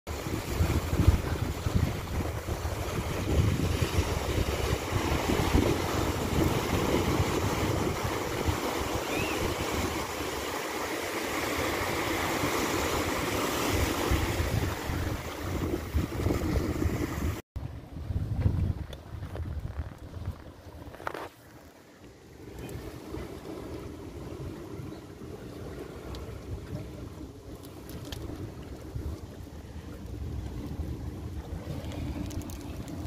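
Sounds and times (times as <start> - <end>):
wind buffeting microphone: 0.1 - 10.2, 11.7 - 21.0
surf washing over rocks: 0.1 - 17.4, 19.0 - 33.0.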